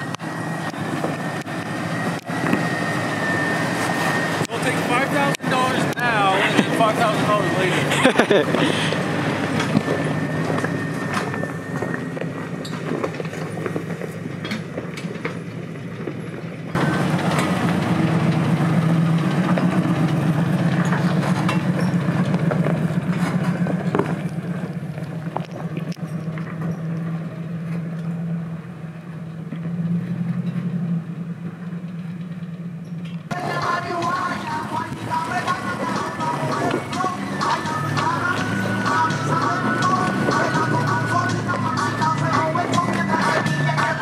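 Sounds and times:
car engines at low revs: 0.0 - 44.0.

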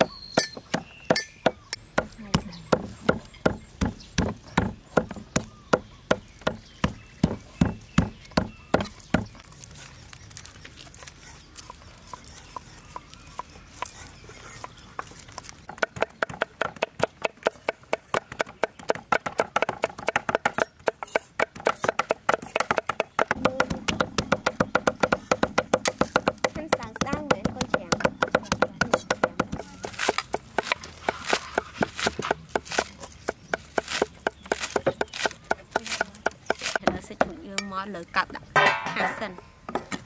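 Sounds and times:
cleaver chopping on wooden block: 0.0 - 9.3, 15.7 - 37.3.

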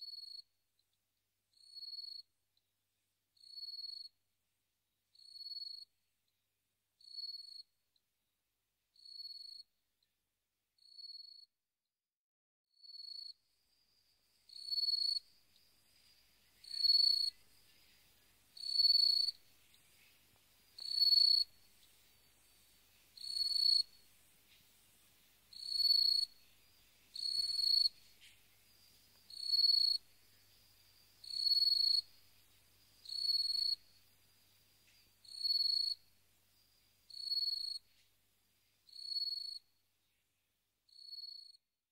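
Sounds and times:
cricket chirping in trills: 0.0 - 0.5, 1.5 - 2.3, 3.4 - 4.2, 5.1 - 6.4, 7.0 - 7.8, 9.0 - 9.7, 10.8 - 11.5, 12.8 - 40.2, 40.9 - 41.6
faint insect trill: 0.0 - 0.6, 1.5 - 2.7, 3.4 - 4.2, 5.1 - 6.4, 7.0 - 7.8, 9.0 - 9.8, 10.8 - 11.5, 12.8 - 41.6.

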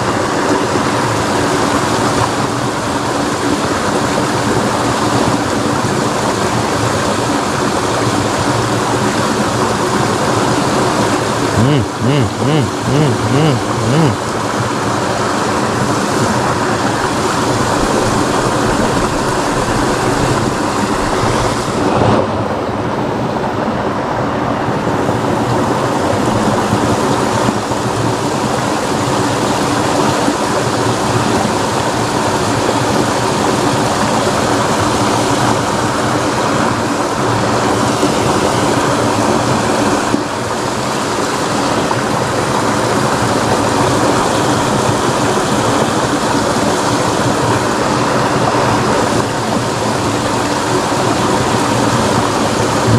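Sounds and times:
fast-flowing water rushing: 0.0 - 52.9.

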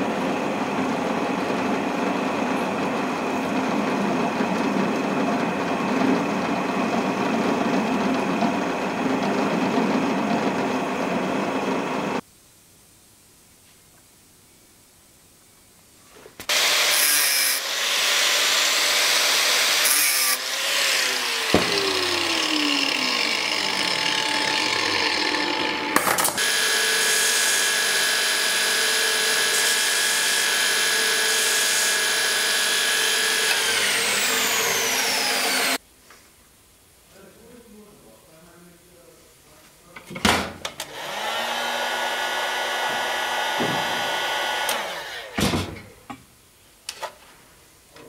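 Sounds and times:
belt grinder whining: 0.0 - 12.2, 16.5 - 35.8, 40.9 - 45.4
tool motor winding down: 0.0 - 12.2, 16.5 - 35.8, 40.9 - 45.4
metal cutting and grinding: 16.5 - 35.8.

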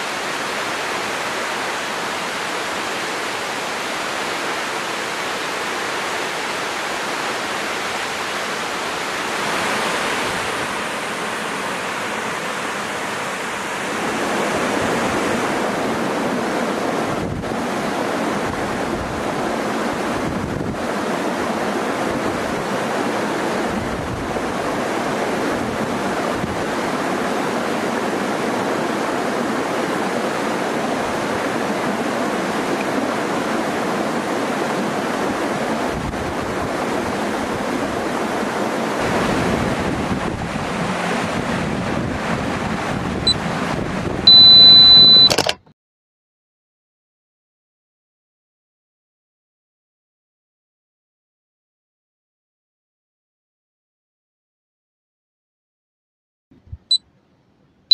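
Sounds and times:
waterfall rushing: 0.0 - 43.0
wind buffets on microphone: 14.0 - 27.7, 35.1 - 45.1.

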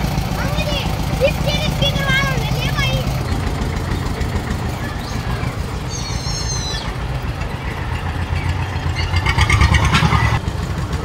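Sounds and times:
tractor diesel engine chugging: 0.0 - 11.0
high-pitched chirping: 4.8 - 9.2.

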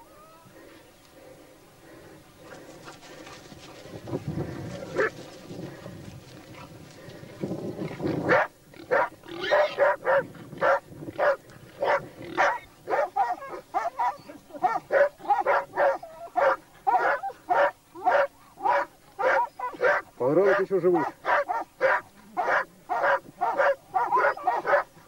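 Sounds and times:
dogs barking: 4.5 - 5.2, 8.2 - 25.0.

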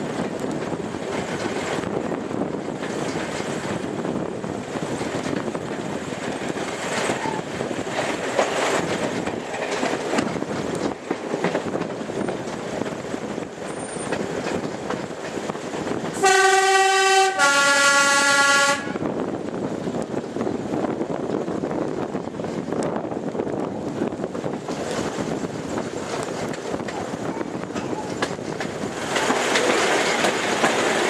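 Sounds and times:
train wheels and engine rumbling: 0.0 - 31.0
two-tone train horn: 16.2 - 19.1.

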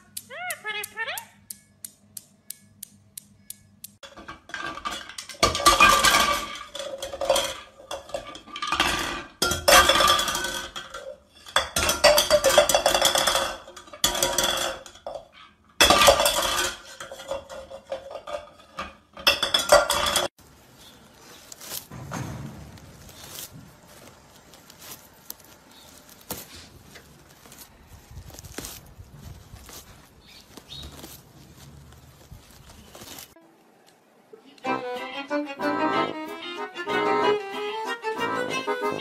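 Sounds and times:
steel balls clicking together: 0.0 - 4.3.

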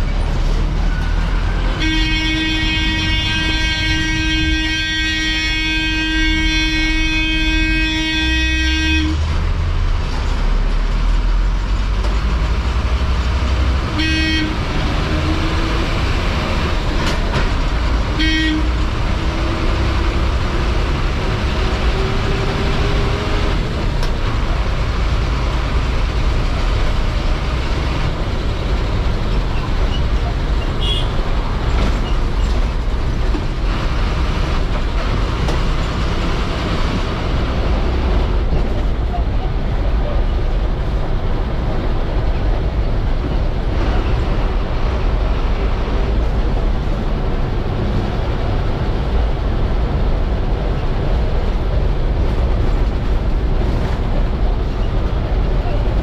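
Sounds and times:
bus diesel engine running: 0.0 - 56.0
road noise: 0.0 - 56.0
horn toots: 1.7 - 9.2, 13.9 - 14.8, 18.1 - 18.9, 30.8 - 31.2.

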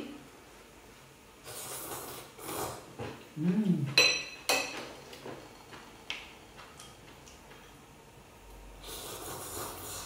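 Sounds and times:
slurping broth: 1.4 - 2.9, 8.8 - 10.0.

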